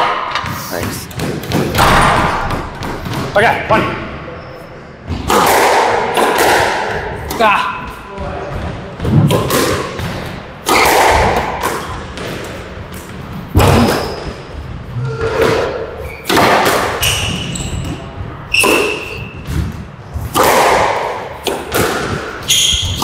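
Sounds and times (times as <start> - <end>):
squash ball hitting rackets and walls: 0.0 - 4.2, 5.0 - 23.0
shoes squeaking on court: 12.2 - 16.3, 17.0 - 19.8, 22.3 - 23.0.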